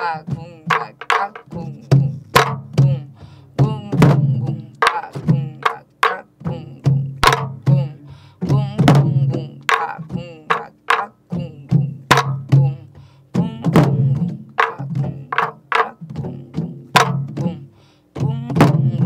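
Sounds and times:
stick strikes on wooden drum shell: 0.7s - 1.6s, 7.2s - 7.8s, 12.1s - 12.6s, 13.7s - 16.2s.

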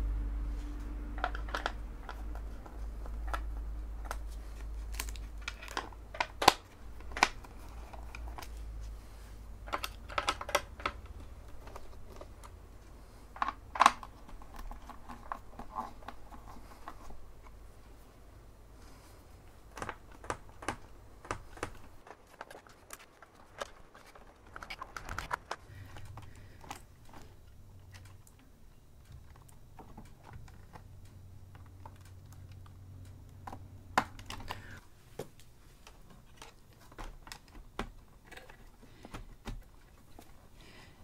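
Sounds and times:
faint low hum: 0.0s - 41.0s
computer parts clicking and tapping: 9.6s - 17.3s, 19.5s - 34.8s.

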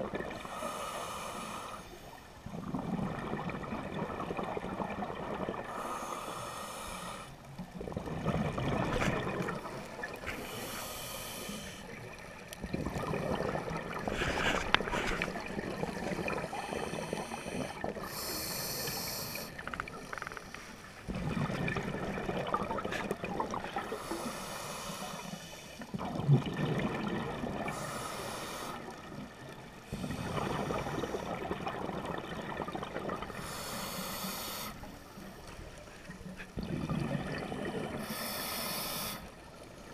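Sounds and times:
diver breathing through regulator: 0.4s - 2.1s, 5.7s - 7.5s, 9.1s - 12.0s, 13.8s - 21.8s, 23.7s - 25.9s, 27.6s - 29.0s, 33.3s - 35.6s, 37.4s - 39.6s
exhaled bubbles rushing: 2.4s - 5.7s, 7.7s - 10.3s, 12.1s - 16.7s, 21.1s - 24.0s, 25.9s - 27.9s, 29.0s - 33.5s, 36.6s - 38.0s.

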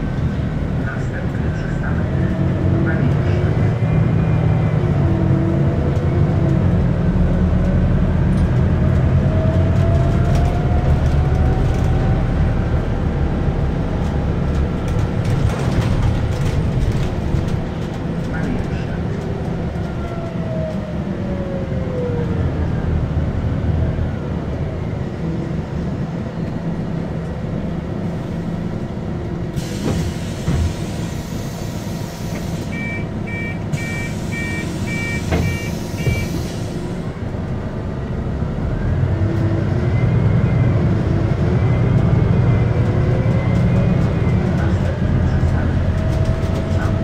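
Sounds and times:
bus engine running: 0.0s - 47.0s
two-tone electronic beeps: 32.8s - 36.3s.

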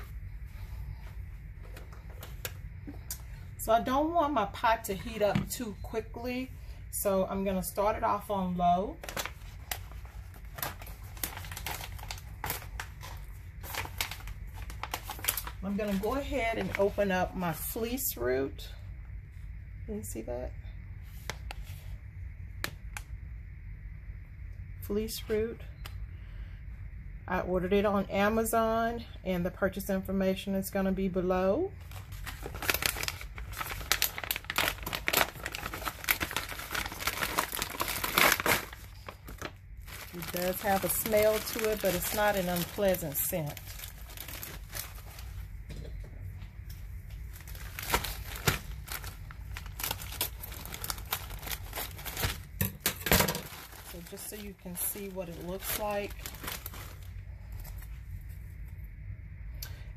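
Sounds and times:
packaging crinkling: 8.9s - 17.1s, 31.8s - 45.5s, 47.1s - 58.4s.

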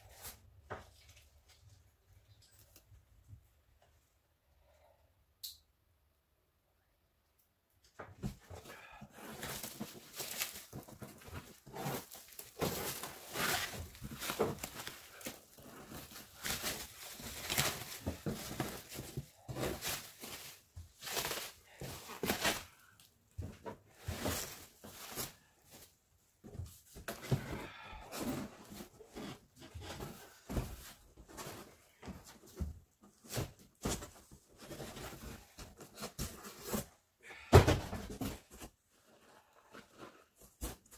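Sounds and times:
plastic wrap crinkling and tearing: 9.2s - 23.1s.

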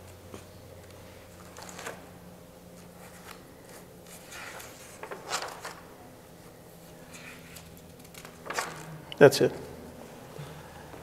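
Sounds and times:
faint steady hum: 0.0s - 11.0s
paper pages rustling and flapping: 1.3s - 2.1s, 2.7s - 5.9s, 7.0s - 8.9s.

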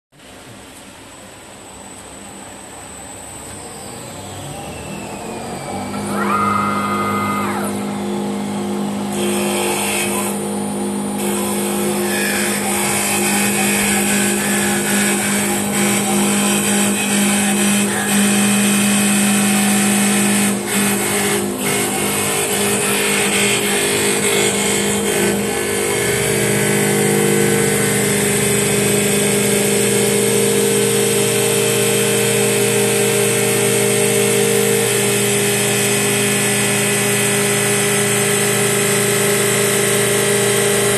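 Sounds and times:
lathe motor hum: 3.1s - 40.9s
cutters shaving wood hiss: 9.1s - 40.9s.

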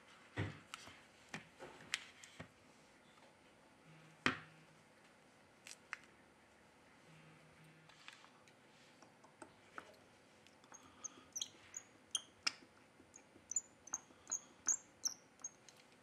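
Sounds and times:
phone parts clicking and squeaking: 10.7s - 15.8s.

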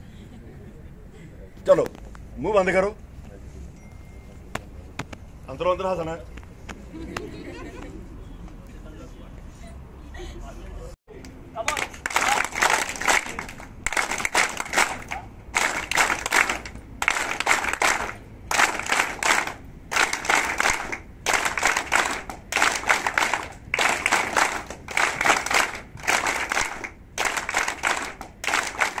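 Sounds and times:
group of people clapping: 11.2s - 29.0s.

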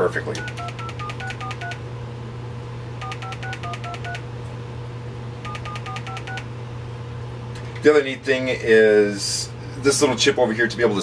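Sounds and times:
steady low hum: 0.0s - 11.0s
two-tone telephone dialling beeps: 0.4s - 1.8s, 3.0s - 4.2s, 5.4s - 6.4s.

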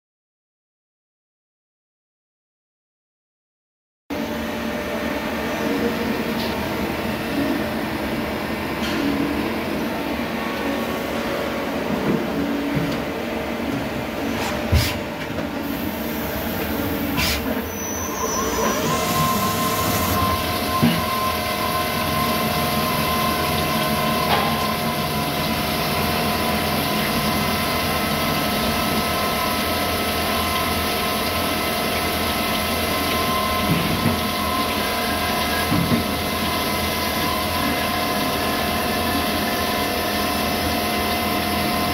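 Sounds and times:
steady whine: 15.6s - 26.6s
lathe mechanical din: 15.7s - 27.5s.

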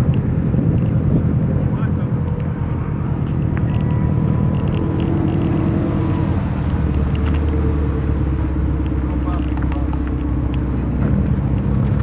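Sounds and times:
car engines rumbling past: 0.0s - 12.0s.

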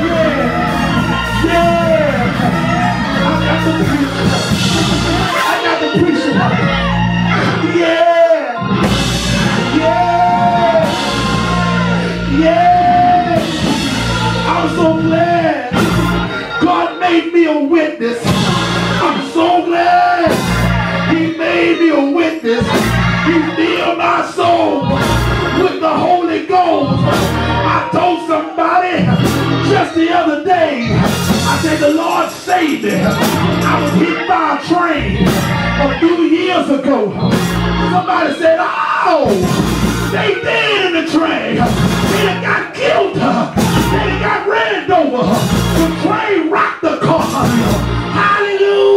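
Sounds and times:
man preaching in a sung cadence: 0.0s - 6.6s, 12.3s - 13.6s, 14.5s - 15.8s, 16.6s - 18.3s, 19.0s - 20.3s, 21.1s - 22.6s, 23.3s - 27.0s, 27.7s - 35.2s, 35.8s - 37.2s, 37.9s - 48.9s
loud instrumental backing: 0.0s - 48.9s
organ chords: 0.0s - 48.9s
sharp percussive hits: 31.2s - 34.2s
man singing into a microphone: 40.2s - 48.9s.

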